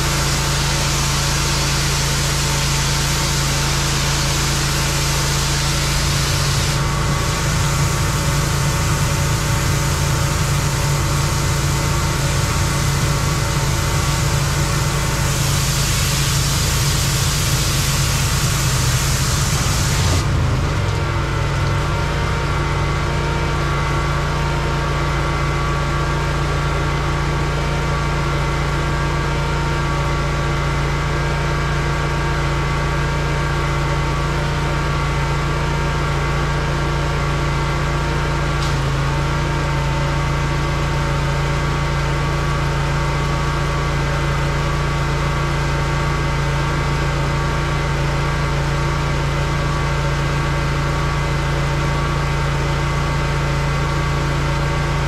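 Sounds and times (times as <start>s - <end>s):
water jet spraying hiss: 0.0s - 20.4s
pressure washer engine running: 0.0s - 55.0s.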